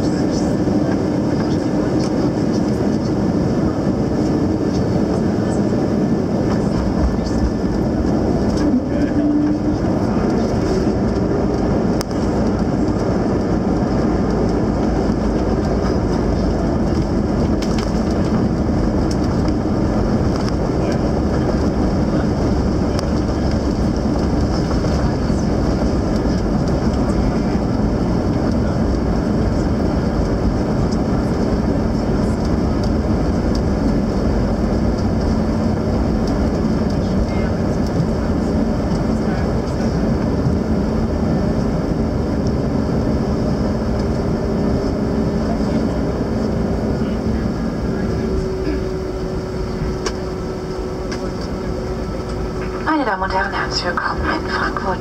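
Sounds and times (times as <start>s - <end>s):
jet engines idling: 0.0s - 55.0s
steady low hum: 0.0s - 55.0s.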